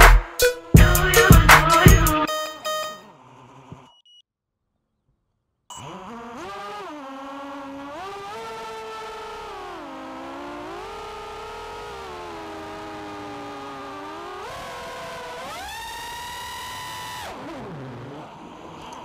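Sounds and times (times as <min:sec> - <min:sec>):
quadcopter motors whining: 0:02.8 - 0:04.0, 0:05.7 - 0:19.0.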